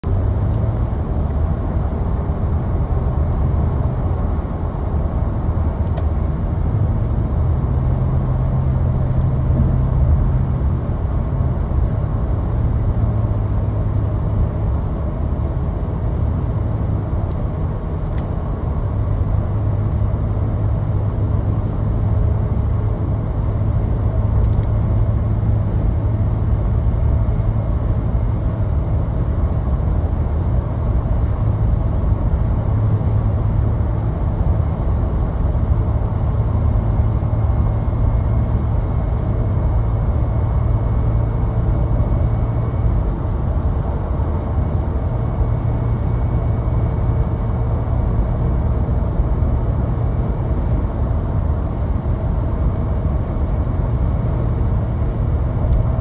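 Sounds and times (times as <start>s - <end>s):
car engine hum: 0.0s - 56.0s
car road noise at highway speed: 0.0s - 56.0s.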